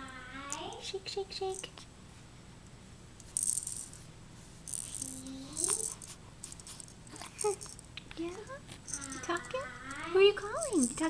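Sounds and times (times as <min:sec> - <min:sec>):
baby rattle shaking: 0:03.2 - 0:04.0, 0:04.7 - 0:11.0.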